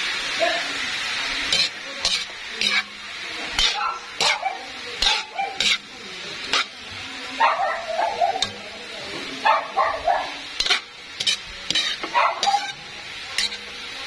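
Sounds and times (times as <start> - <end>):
vegetables sizzling in a wok: 0.0 - 14.0
spatula scraping a wok: 0.7 - 14.0
small dog barking: 3.7 - 5.8, 7.4 - 8.6, 9.4 - 10.5, 12.0 - 12.8.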